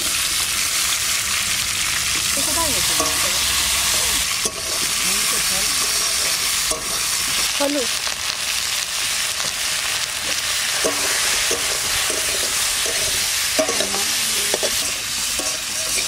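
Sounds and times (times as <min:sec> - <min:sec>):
food sizzling in hot oil: 0:00.0 - 0:16.0
metal spatula scraping pan: 0:02.4 - 0:07.2, 0:10.3 - 0:16.0.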